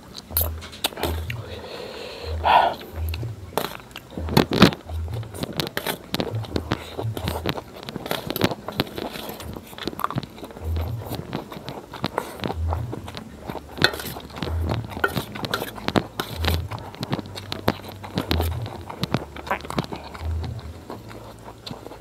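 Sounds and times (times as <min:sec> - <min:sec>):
chewing and slurping noodles: 0:00.0 - 0:22.0
cutlery scraping a steel plate: 0:13.5 - 0:18.5.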